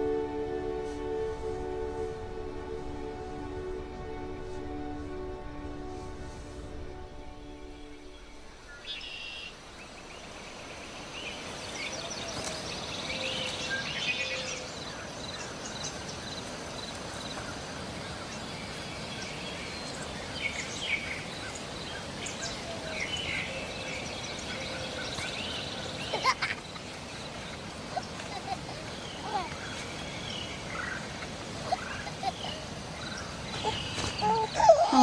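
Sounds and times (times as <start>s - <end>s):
open-air background hiss: 0.0s - 35.0s
birds singing and chirping: 7.4s - 35.0s.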